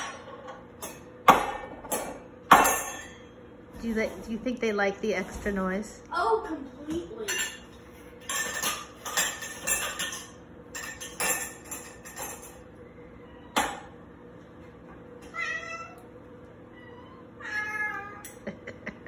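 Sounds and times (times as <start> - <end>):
dish clinking: 0.0 - 3.4, 7.2 - 12.7
cats meowing: 12.8 - 13.8, 15.2 - 18.4.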